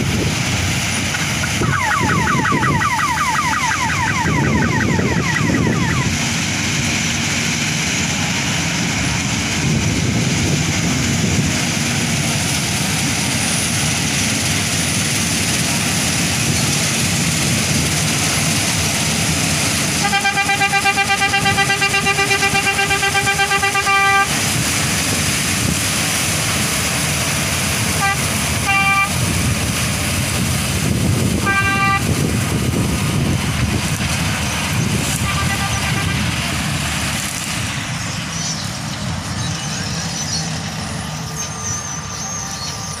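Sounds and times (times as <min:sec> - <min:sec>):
combine harvester engine running: 0:00.0 - 0:43.0
horn toots: 0:20.0 - 0:24.4, 0:28.0 - 0:29.2, 0:31.3 - 0:32.2, 0:35.1 - 0:36.4.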